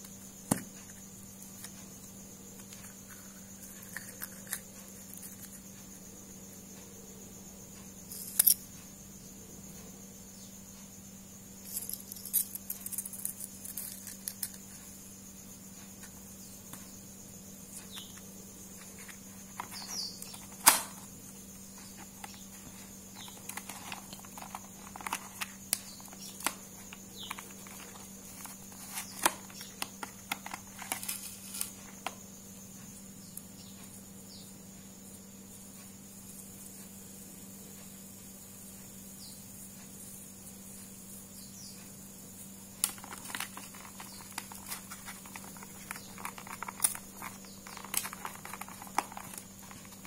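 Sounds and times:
faint steady hum: 0.0s - 50.0s
small clicks and rustles of handling: 22.0s - 32.2s, 42.8s - 50.0s.

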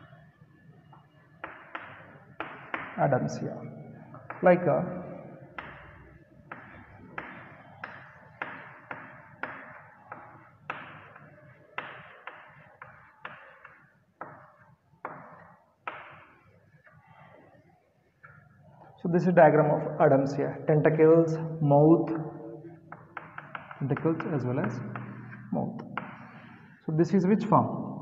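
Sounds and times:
chalk tapping and scraping on chalkboard: 1.4s - 3.0s, 5.6s - 17.5s, 22.9s - 26.8s.

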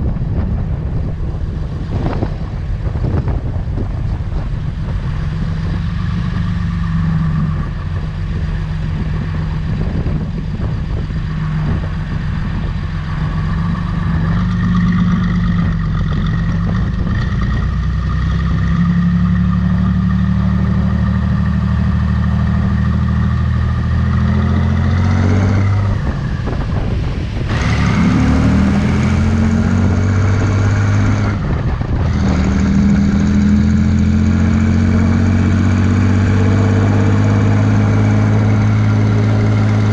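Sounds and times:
diesel tractor engine running: 0.0s - 39.9s.

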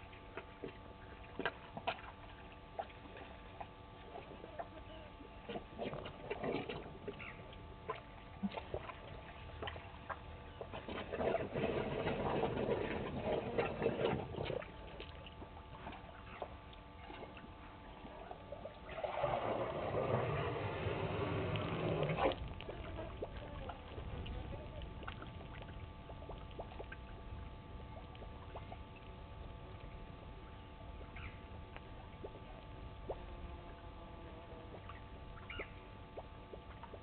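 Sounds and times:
elephant drinking water sloshing: 5.5s - 24.4s.

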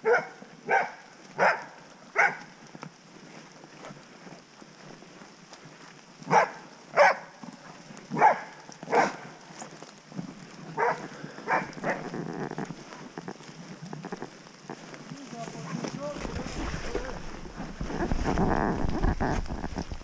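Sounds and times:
dog barking: 0.0s - 2.4s, 6.3s - 7.3s, 8.2s - 9.2s, 10.8s - 12.0s.

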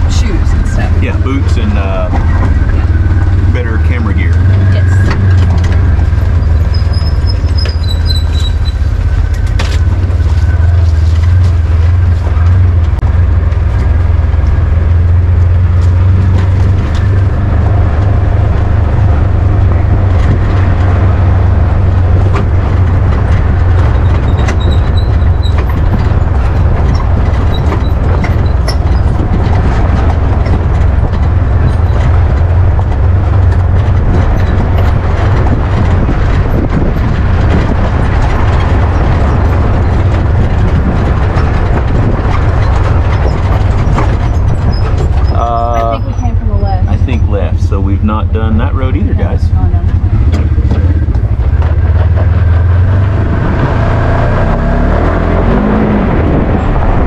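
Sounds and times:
off-road vehicle rumbling: 0.0s - 57.0s
vehicle rattling and knocking: 0.0s - 57.0s.

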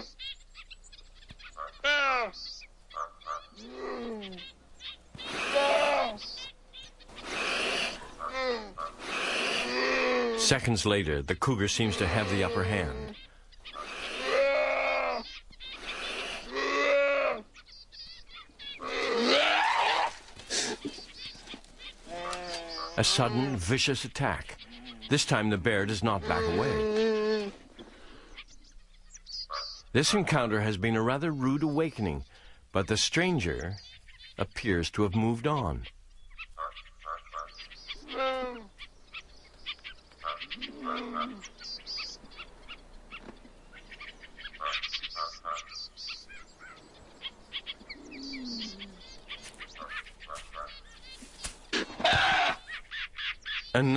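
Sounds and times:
croaking animal calls: 0.0s - 0.3s, 1.4s - 10.8s, 11.5s - 28.5s, 29.4s - 30.6s, 35.6s - 53.9s
cougar yowling: 5.2s - 6.2s, 11.9s - 17.5s, 18.8s - 20.2s, 40.2s - 41.6s, 52.0s - 52.7s.

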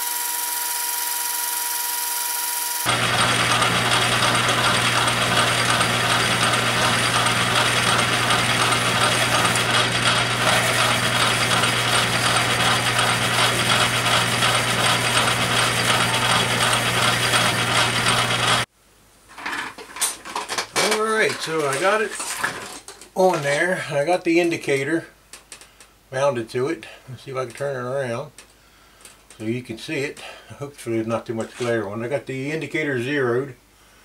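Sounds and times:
lathe gears clattering: 2.9s - 18.6s
low motor hum: 2.9s - 18.7s.

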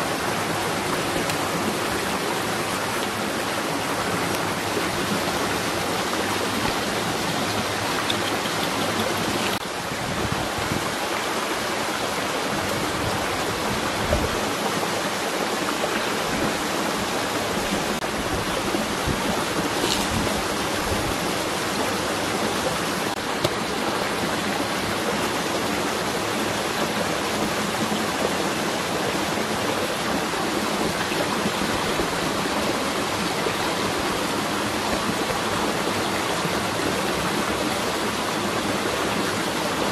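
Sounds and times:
rushing water: 0.0s - 39.9s.

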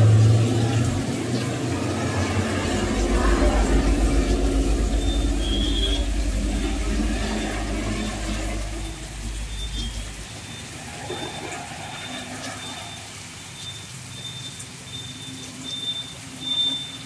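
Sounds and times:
low rumble: 0.0s - 12.0s
heavy rain on road: 0.0s - 17.0s
high electronic beeping: 1.6s - 13.0s.

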